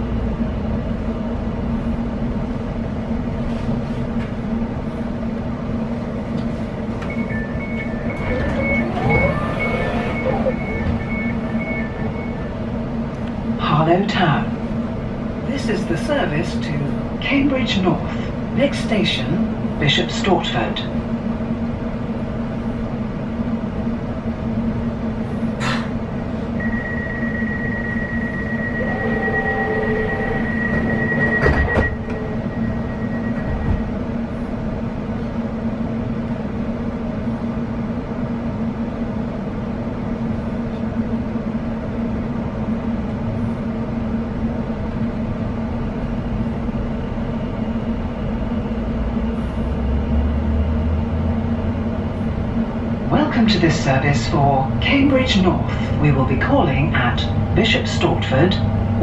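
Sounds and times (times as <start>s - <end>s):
train interior rumble: 0.0s - 59.0s
high whine: 26.6s - 34.8s.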